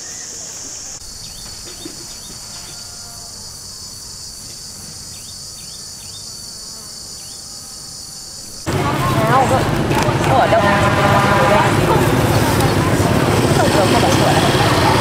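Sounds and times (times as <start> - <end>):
high-pitched insect chorus: 0.0 - 9.6.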